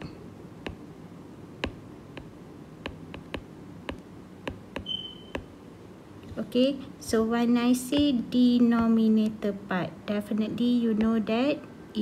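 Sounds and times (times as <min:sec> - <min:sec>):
stylus tapping on glass screen: 0:00.0 - 0:00.8, 0:01.6 - 0:05.5.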